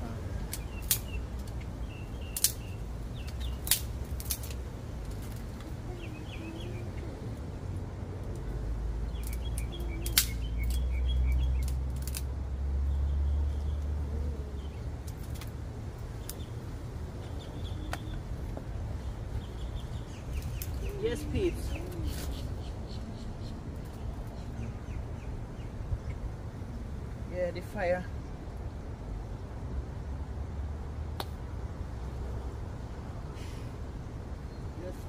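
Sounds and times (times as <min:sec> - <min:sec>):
small birds chirping: 0:00.0 - 0:28.8
wood snapping: 0:00.5 - 0:01.7, 0:02.3 - 0:02.6, 0:03.2 - 0:05.7, 0:09.2 - 0:12.3.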